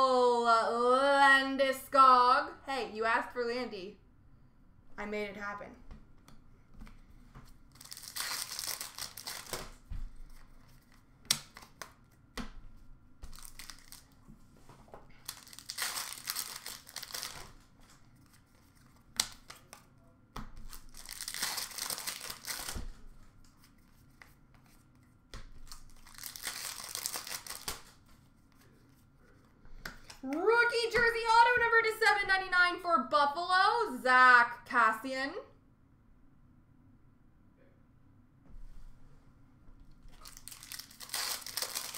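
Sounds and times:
cards rustling: 0:06.8 - 0:12.2, 0:13.2 - 0:19.9, 0:20.5 - 0:30.4, 0:40.1 - 0:41.9
wrappers crinkling: 0:07.6 - 0:11.8, 0:13.3 - 0:14.2, 0:15.1 - 0:19.8, 0:20.6 - 0:23.0, 0:25.6 - 0:28.0, 0:40.1 - 0:41.9.

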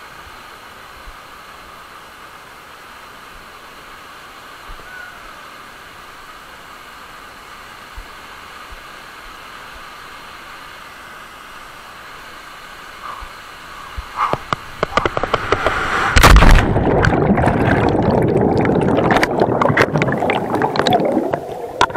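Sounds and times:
wind rushing on microphone: 0:13.0 - 0:18.3
underwater bubbling and gurgling: 0:13.0 - 0:21.9
loud splash into water: 0:14.8 - 0:21.9.

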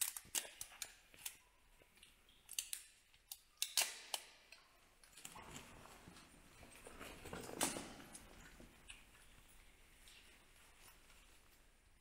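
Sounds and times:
tape clicking and crinkling: 0:00.0 - 0:10.4
tape snips: 0:02.5 - 0:04.6.

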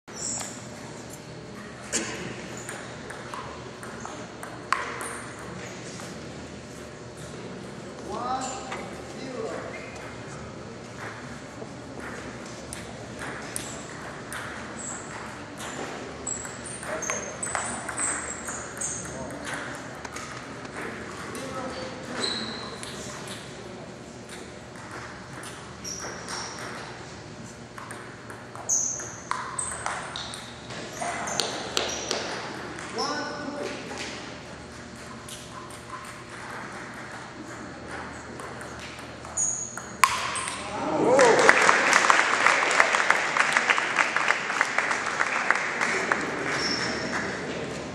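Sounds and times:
high squeak: 0:22.1 - 0:22.8
short high squeaks: 0:22.1 - 0:23.4, 0:28.6 - 0:29.8, 0:39.3 - 0:39.9, 0:46.5 - 0:47.2
crowd murmur in a large hall: 0:40.5 - 0:47.9.

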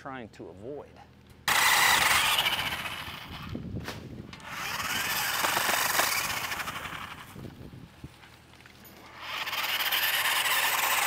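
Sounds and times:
chainsaw cutting tree limb: 0:01.5 - 0:07.6, 0:09.0 - 0:11.0.

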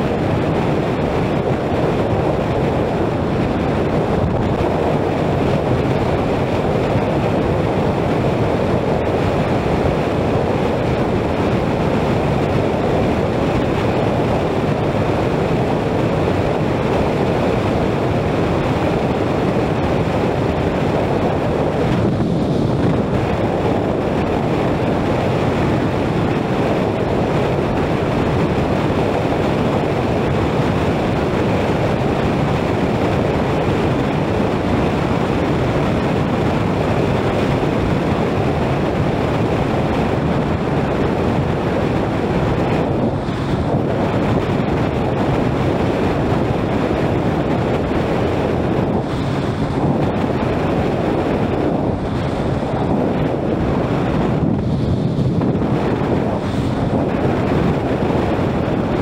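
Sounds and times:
wind buffeting microphone: 0:00.0 - 0:59.0
road noise: 0:47.4 - 0:59.0.

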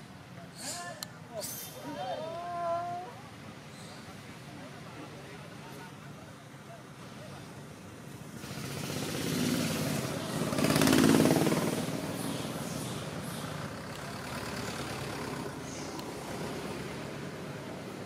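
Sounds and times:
vehicle engine passing: 0:08.4 - 0:18.0.

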